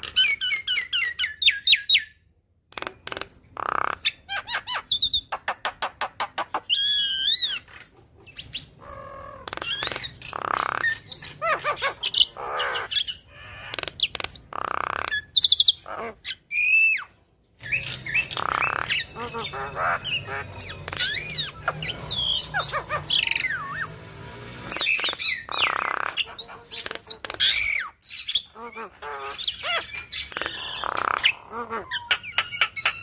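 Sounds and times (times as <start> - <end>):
myna chattering song: 17.6 - 27.9.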